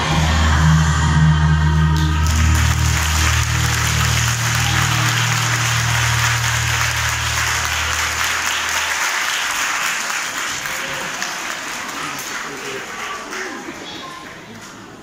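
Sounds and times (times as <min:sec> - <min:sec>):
low steady hum: 0:00.0 - 0:09.0
audience applauding: 0:02.0 - 0:15.0.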